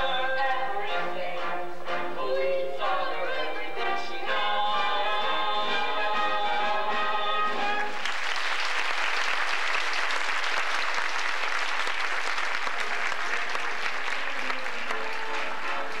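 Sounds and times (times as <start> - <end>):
music: 0.0 - 9.5, 10.4 - 16.0
audience applauding: 7.8 - 16.0.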